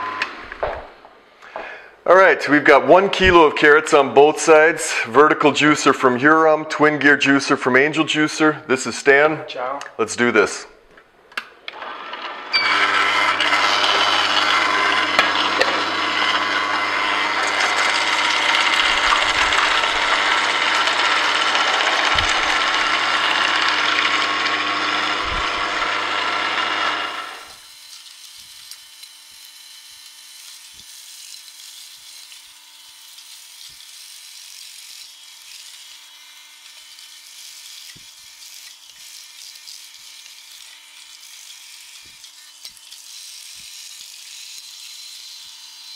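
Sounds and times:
juicer motor whir with whine: 0.0s - 0.9s, 11.7s - 45.9s
juicer grinding carrots: 0.0s - 1.8s, 11.4s - 45.9s.

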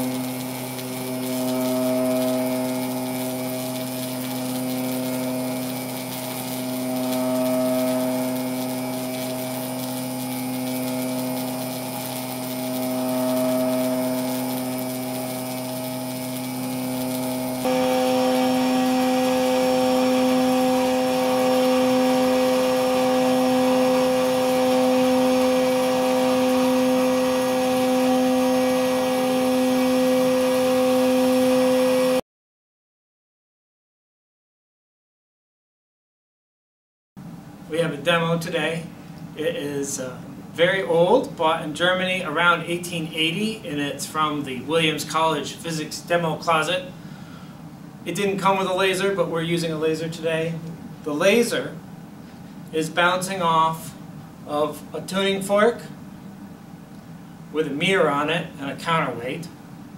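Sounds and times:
harsh higher buzz: 0.0s - 32.2s
tuning forks buzzing hum: 0.0s - 32.2s, 37.6s - 59.9s.

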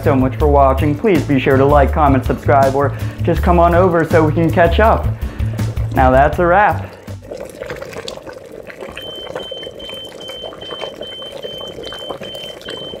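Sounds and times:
saucepan boiling: 0.0s - 13.0s
high electronic beep: 9.0s - 13.0s.

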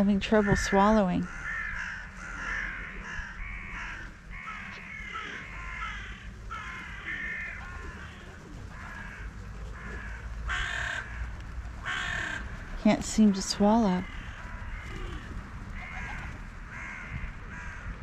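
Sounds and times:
crows cawing: 0.2s - 12.8s, 13.8s - 18.0s.

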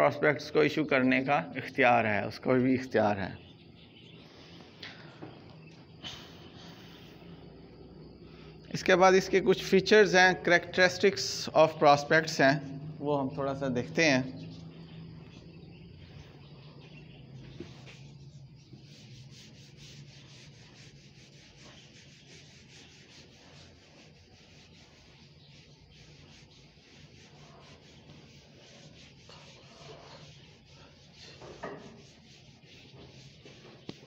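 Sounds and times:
eraser rubbing on whiteboard: 17.6s - 34.0s.

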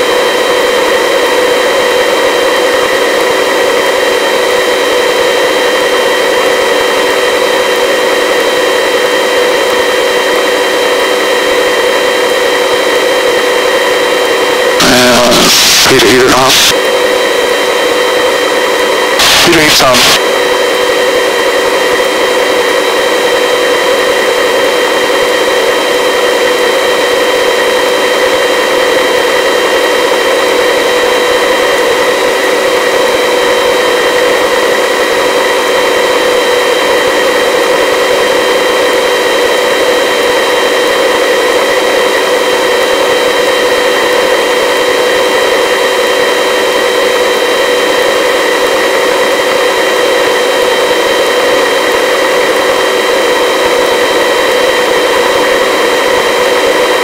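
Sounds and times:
helicopter hovering: 2.7s - 33.0s.

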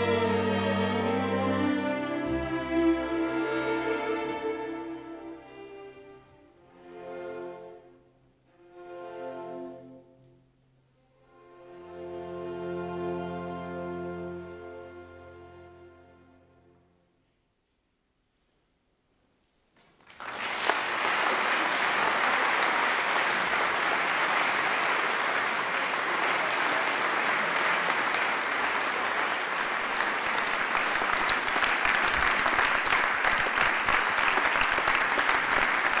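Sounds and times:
audience applauding: 19.8s - 36.0s.

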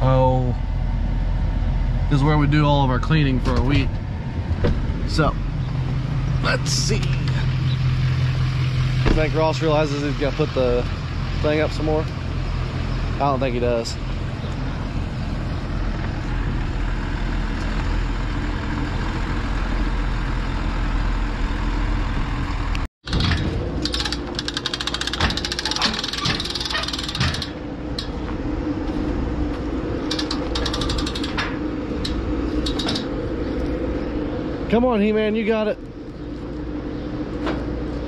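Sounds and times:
farm machinery engine running: 0.0s - 38.0s
rapid metallic rattling: 23.1s - 28.2s, 30.0s - 33.2s.

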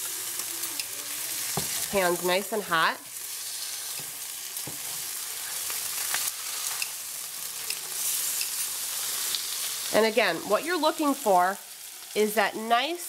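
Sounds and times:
meat sizzling in a skillet: 0.0s - 13.0s
metal tongs clicking: 7.6s - 8.6s.

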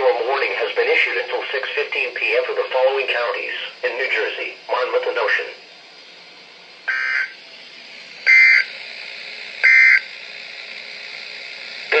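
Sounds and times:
radio hiss: 0.0s - 6.2s, 6.8s - 7.4s
data tone bursts: 6.9s - 7.4s, 8.3s - 8.7s, 9.6s - 10.1s.

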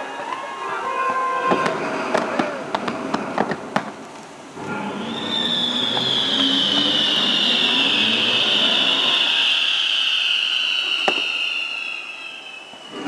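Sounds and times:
fireworks bangs: 0.9s - 13.0s
high screeching firework hiss: 4.6s - 13.0s.

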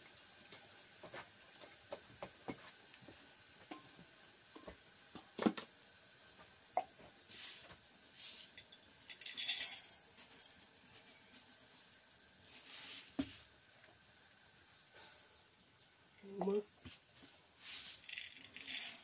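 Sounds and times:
garlic sizzling in a pan: 0.0s - 19.0s
metal mug and pan clinking: 8.6s - 12.0s
hissing rattling burst: 17.8s - 19.0s.

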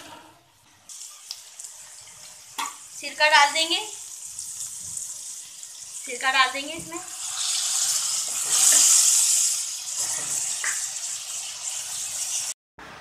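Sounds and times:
vinegar sizzling in hot oil: 0.9s - 12.6s.

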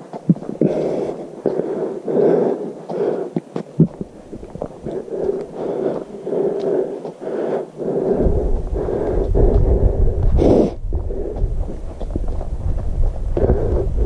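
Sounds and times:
heavy rhythmic breathing: 0.0s - 14.0s
wind buffeting microphone: 3.8s - 6.8s, 7.8s - 14.0s.

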